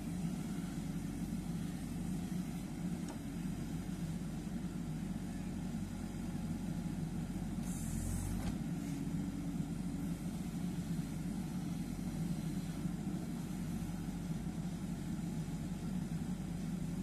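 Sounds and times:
diesel engine running: 0:00.0 - 0:17.0
backhoe digging soil: 0:07.6 - 0:09.1.

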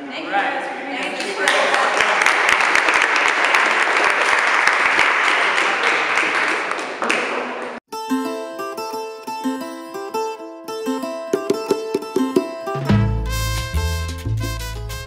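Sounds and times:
audience applause: 0:01.4 - 0:07.8
plucked-string music: 0:07.9 - 0:15.0.

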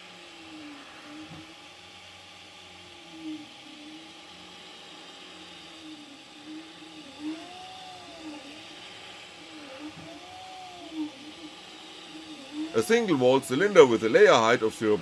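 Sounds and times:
steady hiss: 0:00.0 - 0:15.0
stepper motors whining: 0:00.0 - 0:15.0.

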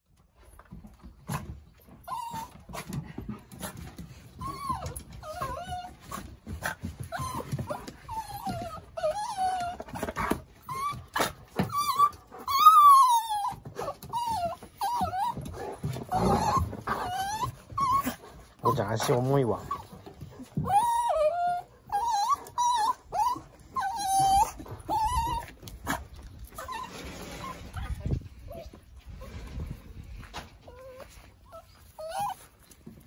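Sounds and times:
dog whining: 0:01.7 - 0:29.4, 0:30.6 - 0:33.0.

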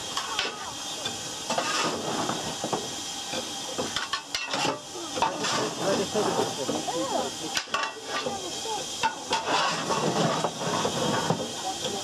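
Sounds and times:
steam hissing: 0:00.0 - 0:12.0
metallic clanks of iron tool: 0:07.6 - 0:08.3.

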